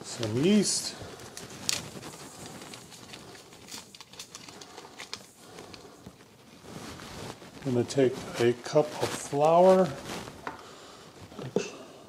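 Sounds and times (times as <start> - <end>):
packet tearing and crinkling: 1.1 - 6.0.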